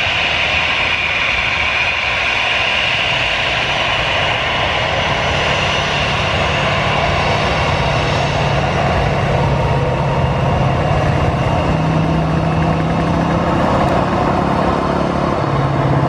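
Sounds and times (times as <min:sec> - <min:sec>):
jet engines whining: 0:00.0 - 0:16.0
road vehicle engine hum: 0:03.6 - 0:16.0.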